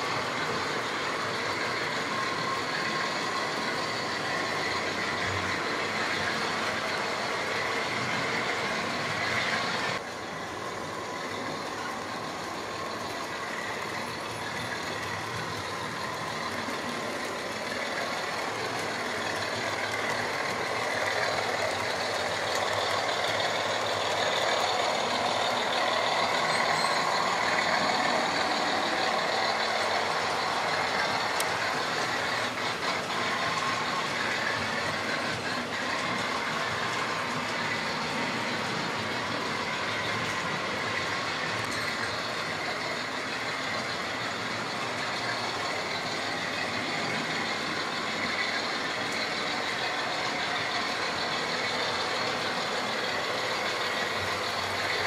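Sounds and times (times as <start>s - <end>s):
model train wheels clattering: 0.0s - 55.0s.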